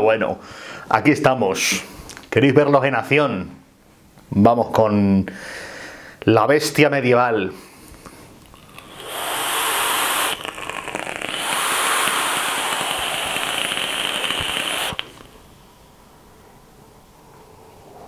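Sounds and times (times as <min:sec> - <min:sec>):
air drawn through atomizer: 0:08.0 - 0:15.7
vape coil sizzling and crackling: 0:08.4 - 0:15.5.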